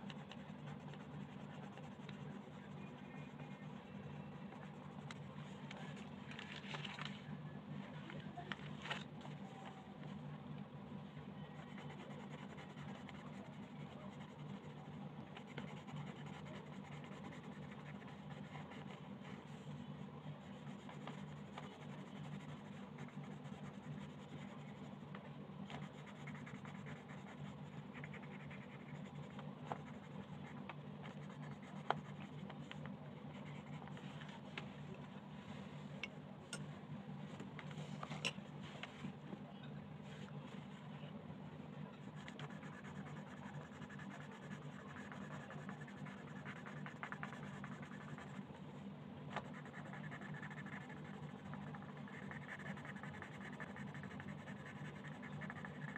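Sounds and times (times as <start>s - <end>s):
pencil scratching on paper: 0.1s - 3.8s, 11.6s - 19.6s, 20.4s - 25.0s, 25.7s - 34.0s, 42.0s - 48.5s, 49.4s - 55.9s.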